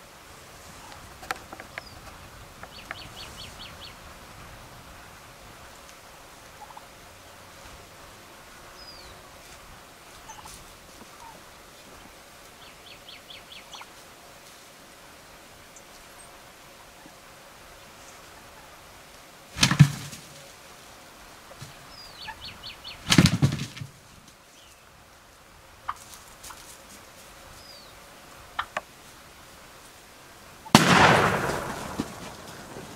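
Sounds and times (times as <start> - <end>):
wild turkey gobbling: 5.7 - 7.0, 10.0 - 14.0, 21.5 - 23.8, 25.8 - 26.8, 27.6 - 29.0
shotgun shot: 19.6 - 20.2, 30.8 - 32.9.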